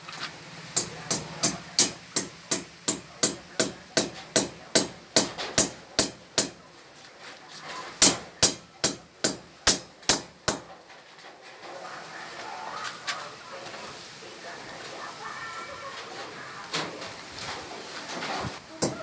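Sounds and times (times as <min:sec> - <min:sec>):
hammer striking steel frame: 0:00.8 - 0:06.6, 0:08.0 - 0:11.0, 0:18.7 - 0:19.0.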